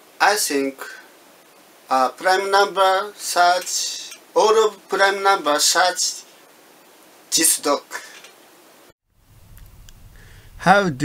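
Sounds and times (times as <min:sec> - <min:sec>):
steady hiss: 0:00.0 - 0:11.0
low hum: 0:09.2 - 0:10.9.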